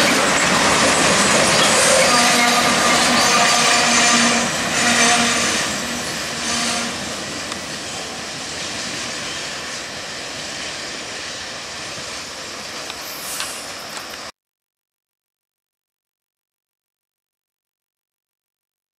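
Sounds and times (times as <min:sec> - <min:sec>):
wheels squealing: 0:00.0 - 0:12.2
freight cars rolling on rails: 0:00.0 - 0:14.3.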